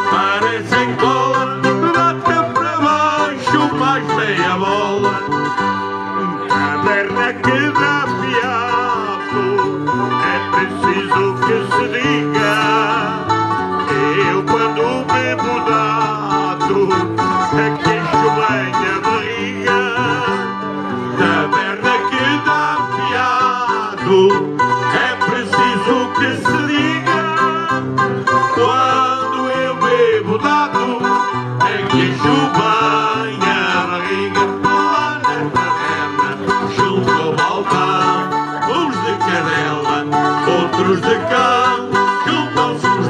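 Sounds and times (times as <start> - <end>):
person singing: 0.0 - 43.0
plucked string instruments: 0.0 - 43.0.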